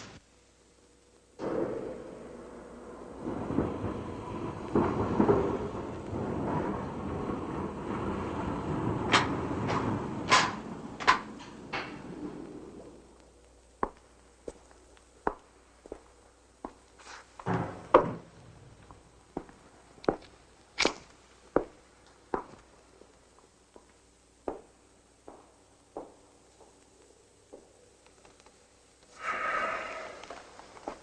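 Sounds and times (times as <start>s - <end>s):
rustling noise: 7.6s - 24.0s, 28.0s - 31.0s.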